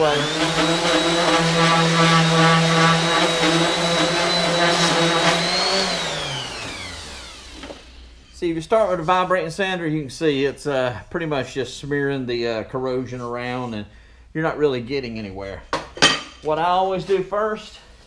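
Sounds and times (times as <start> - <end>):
orbital sander motor whine: 0.0 - 8.2.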